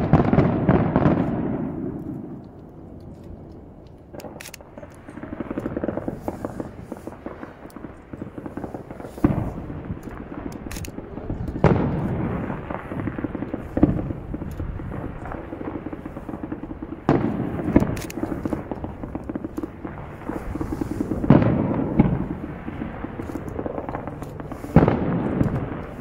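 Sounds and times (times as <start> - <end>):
firework crackling: 0.0 - 26.0
firework shells booming: 0.0 - 26.0.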